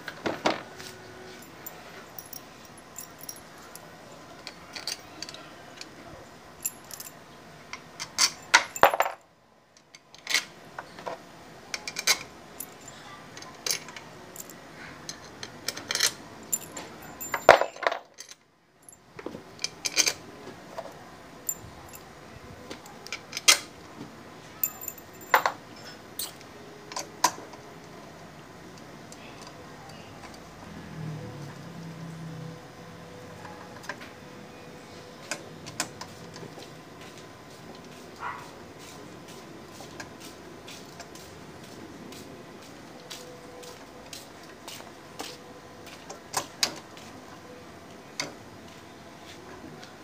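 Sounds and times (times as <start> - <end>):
metal bolts clinking: 8.0 - 9.2, 11.8 - 18.4, 24.6 - 27.4.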